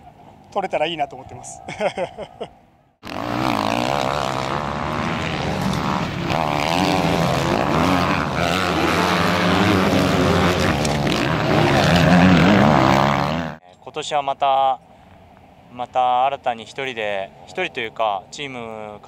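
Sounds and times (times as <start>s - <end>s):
motocross bike engines revving: 3.0s - 13.6s.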